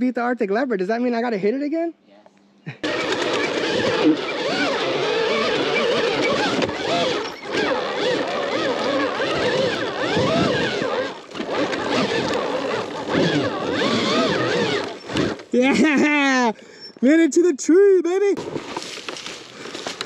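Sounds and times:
electric dirt bike motor whining: 0:02.8 - 0:15.6.

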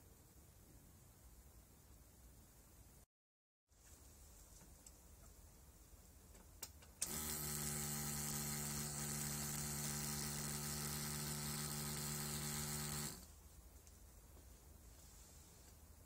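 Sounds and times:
starter motor cranking: 0:07.0 - 0:13.3.

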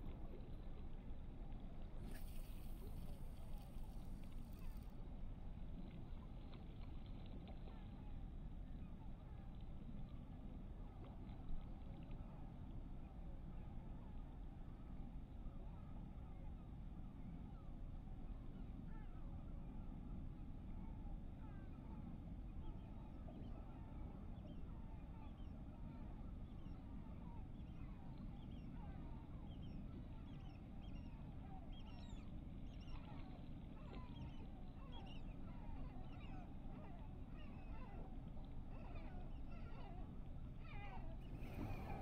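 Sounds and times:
low rumble: 0:41.1 - 0:42.0.

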